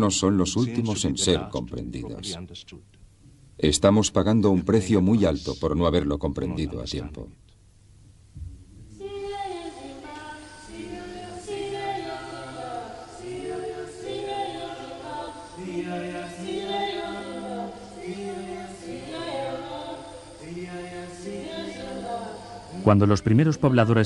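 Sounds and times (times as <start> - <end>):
choir singing in harmony: 9.0 - 24.0.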